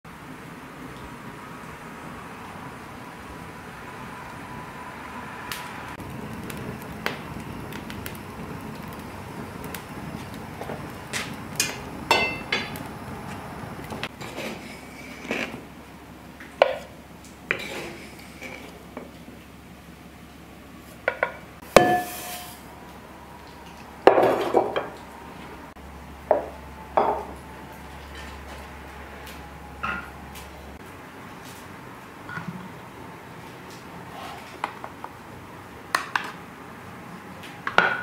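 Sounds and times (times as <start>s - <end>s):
crockery and utensils clinking: 11.6s - 12.8s, 21.8s - 22.6s.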